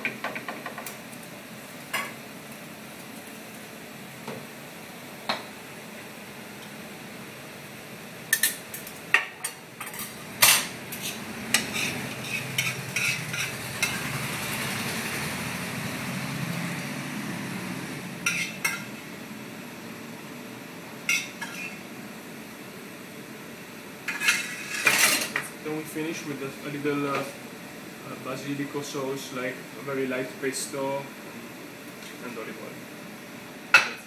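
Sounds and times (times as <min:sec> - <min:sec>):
metal utensils clinking on pan: 0:09.8 - 0:14.0.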